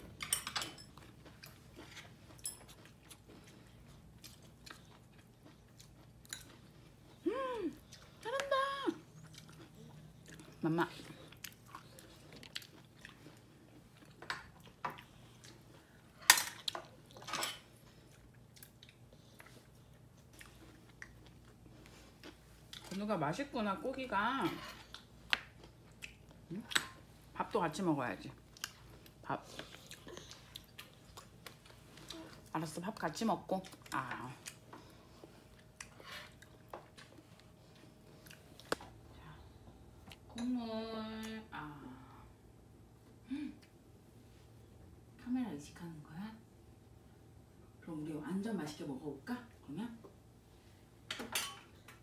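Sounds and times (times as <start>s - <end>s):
baby chewing food: 0.8s - 23.0s, 24.8s - 27.4s, 28.3s - 40.3s.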